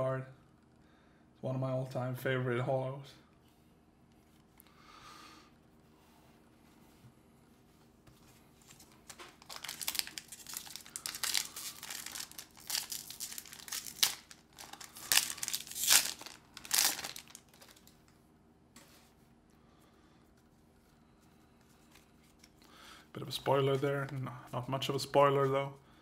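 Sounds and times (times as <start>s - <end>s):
foil wrapper crinkling and tearing: 8.7s - 18.1s.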